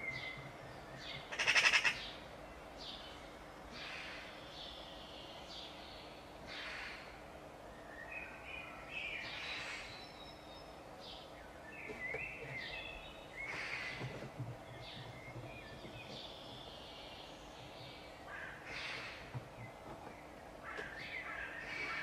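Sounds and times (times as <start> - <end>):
harsh rasping bird calls: 1.2 - 2.2.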